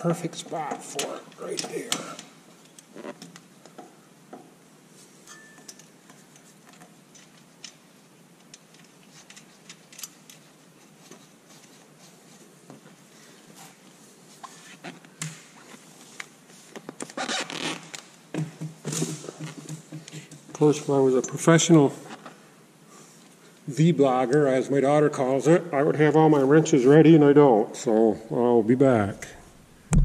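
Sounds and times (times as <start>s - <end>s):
light handling clicks and scrapes: 8.4s - 15.0s.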